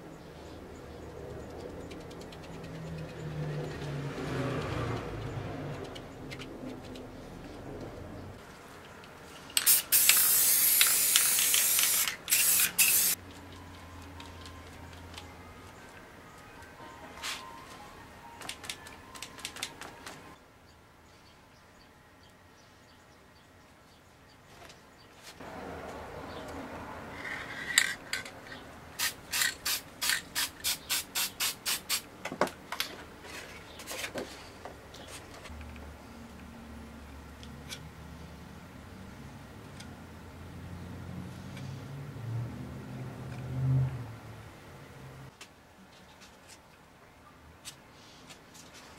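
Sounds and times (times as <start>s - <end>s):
spray paint can hissing: 9.6s - 13.2s, 29.0s - 32.1s.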